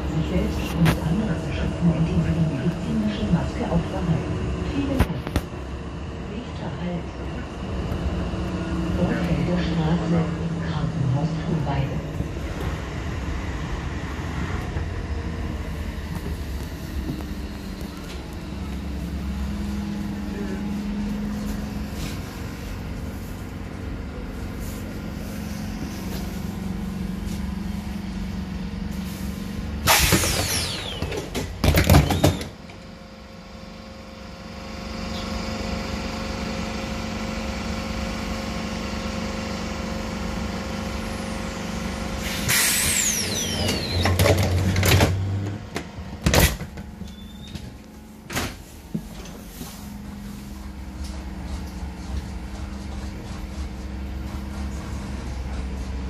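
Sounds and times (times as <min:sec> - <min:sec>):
tram running hum: 0:00.0 - 0:56.0
pneumatic doors hissing: 0:29.8 - 0:31.4, 0:42.2 - 0:44.5.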